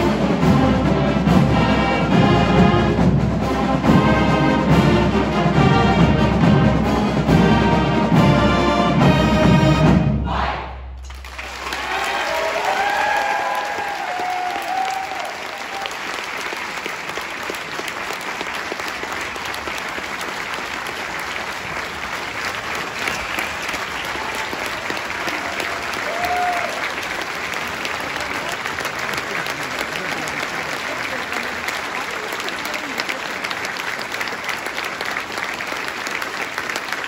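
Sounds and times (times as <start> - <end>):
crowd calling out: 10.2 - 10.8, 11.5 - 16.0, 23.2 - 27.0
audience applauding: 11.1 - 37.0.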